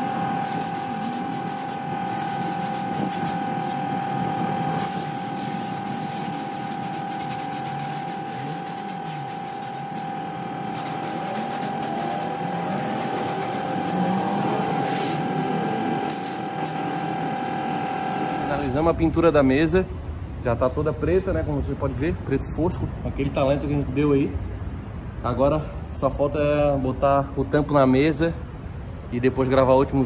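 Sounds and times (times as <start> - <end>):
paint spray gun hissing: 0.0 - 3.9, 4.8 - 19.0
air compressor whining: 0.0 - 20.4.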